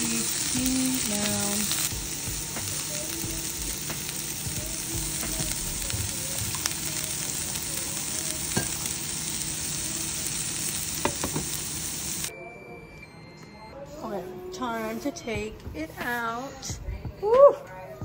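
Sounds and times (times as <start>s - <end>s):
vegetables sizzling in butter: 0.0s - 12.3s.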